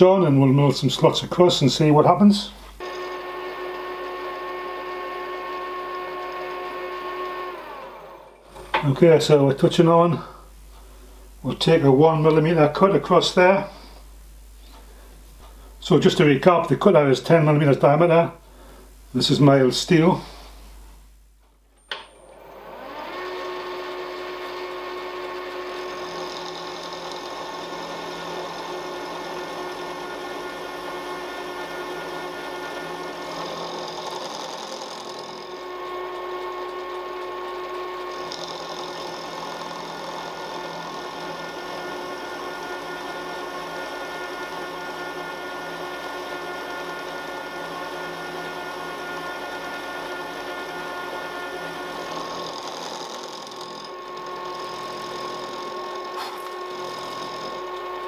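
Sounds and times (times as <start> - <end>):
milling machine motor whine: 2.8 - 8.9, 21.9 - 58.0
end mill cutting steel: 22.2 - 58.0.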